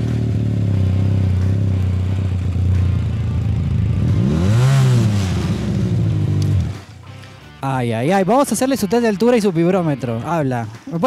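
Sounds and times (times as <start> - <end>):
motorcycle engine idling: 0.0 - 7.4
motorcycle throttle blip: 5.5 - 7.4.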